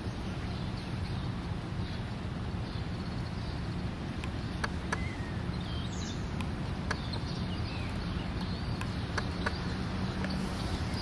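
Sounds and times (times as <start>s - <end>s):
bird chirps: 4.4s - 11.0s
soft clicks: 8.4s - 9.6s, 10.2s - 10.4s.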